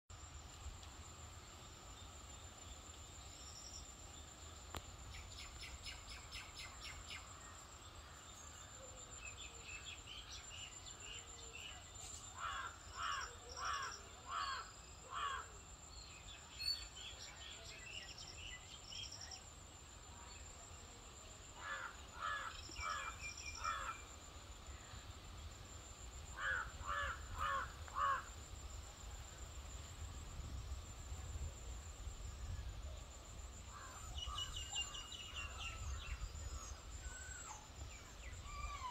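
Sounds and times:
steady high-pitched whine: 0:00.1 - 0:38.9
crow cawing: 0:21.6 - 0:23.1, 0:26.4 - 0:28.3
faint bird chirps: 0:32.1 - 0:38.9.

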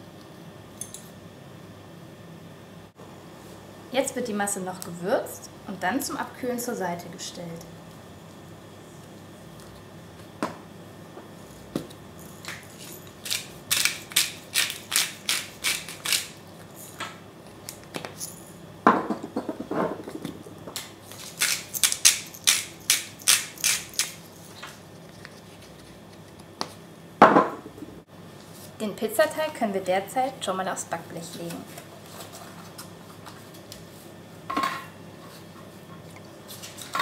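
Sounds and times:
spice grinder crunching clicks: 0:12.5 - 0:16.4, 0:20.8 - 0:24.2.

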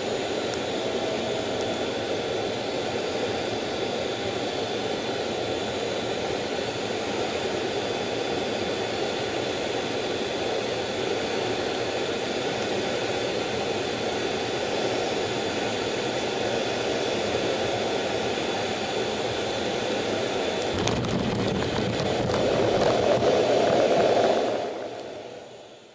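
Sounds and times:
jet engine and airflow rush: 0:00.0 - 0:25.9
sharp knocks of jet landing: 0:20.7 - 0:24.4.

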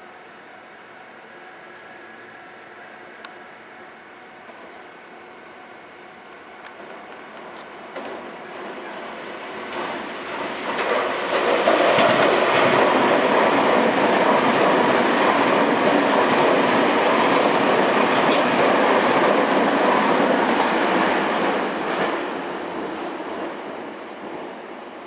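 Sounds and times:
train wheels rushing on rails: 0:06.3 - 0:25.0
clacks over rail joints: 0:06.7 - 0:09.0, 0:09.7 - 0:19.7.

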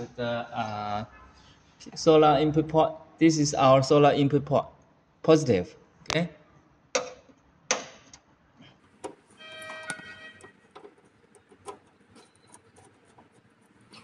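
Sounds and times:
screwdriver clicks and scrapes: 0:09.0 - 0:14.0
brief ringing tone: 0:09.4 - 0:10.5.

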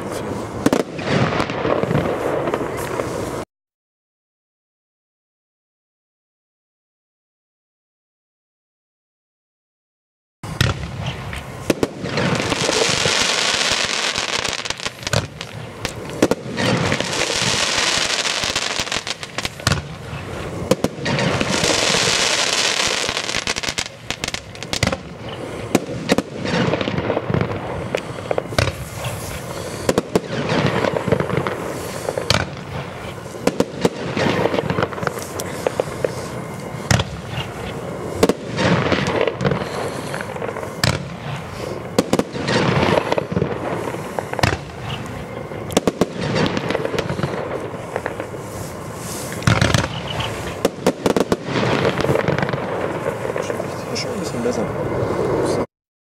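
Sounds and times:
firework aerial bursts: 0:00.0 - 0:03.5, 0:10.4 - 0:55.7
firework launch thumps: 0:10.5 - 0:12.6, 0:14.9 - 0:17.0, 0:19.4 - 0:20.0, 0:28.0 - 0:31.6, 0:32.2 - 0:32.7, 0:36.9 - 0:37.4, 0:40.8 - 0:41.2, 0:44.2 - 0:44.8, 0:49.3 - 0:50.0
steady hiss: 0:10.5 - 0:55.7.

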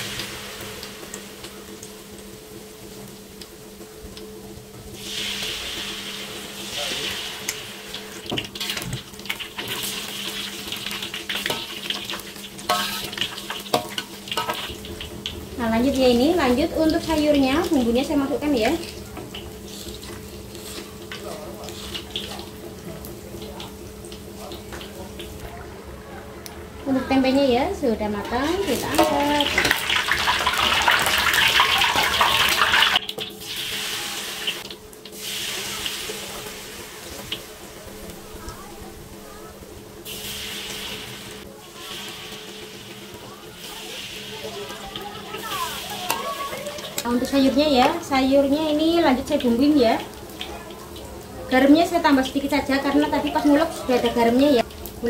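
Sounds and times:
food sizzling in hot oil: 0:00.0 - 0:25.5, 0:26.8 - 0:55.0
metal spatula scraping wok: 0:09.5 - 0:15.1, 0:28.1 - 0:30.7.

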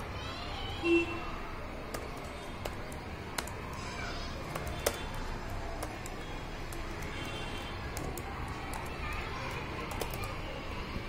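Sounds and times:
low background noise: 0:00.0 - 0:11.0
laptop keys clicking: 0:01.8 - 0:10.4.

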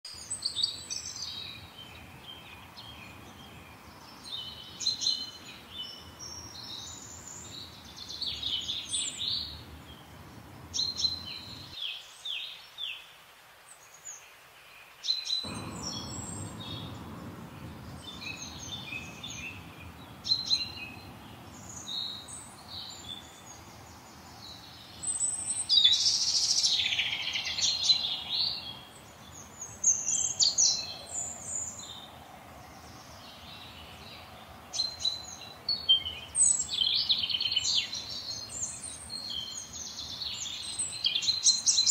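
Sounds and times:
songbirds chirping: 0:00.0 - 0:41.9
low background rumble: 0:15.5 - 0:24.9.

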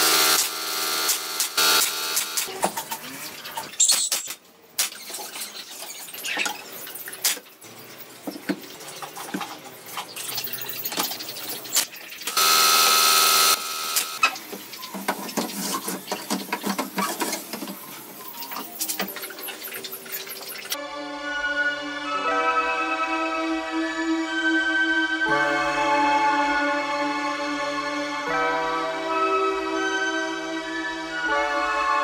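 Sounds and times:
pneumatic nailer clicks: 0:00.0 - 0:02.5
power tool running: 0:00.0 - 0:02.5, 0:12.3 - 0:14.2.

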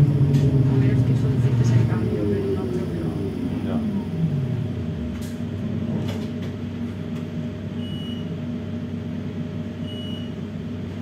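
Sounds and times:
tram low hum: 0:00.0 - 0:11.0.

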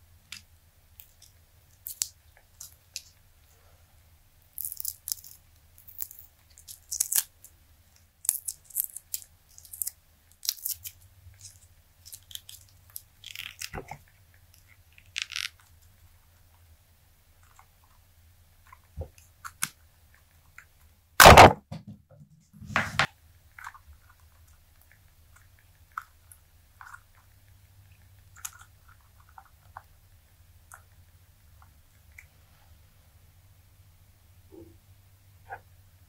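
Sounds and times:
loud snaps: 0:21.2 - 0:21.7.

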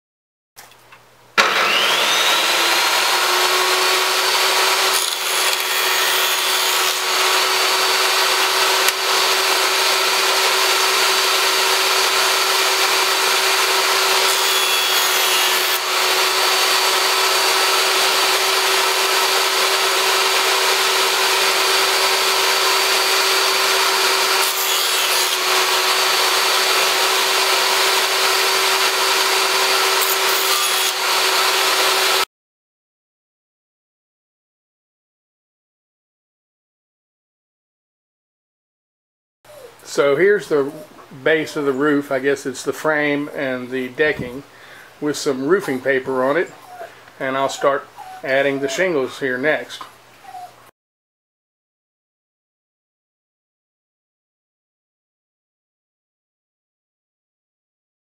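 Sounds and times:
wood pushed through saw blade: 0:01.4 - 0:32.2
table saw whine: 0:01.4 - 0:32.3.

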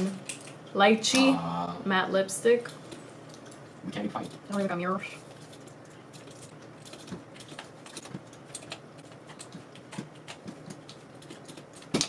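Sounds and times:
keyboard typing: 0:05.3 - 0:12.0.

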